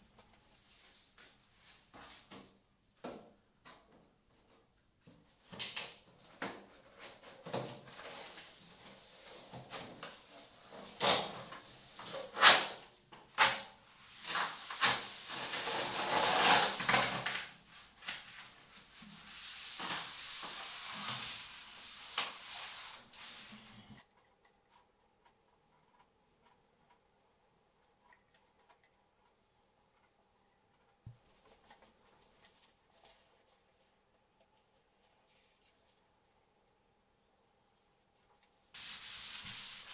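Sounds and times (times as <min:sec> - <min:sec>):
plastic scraping and sliding: 0:14.3 - 0:17.4.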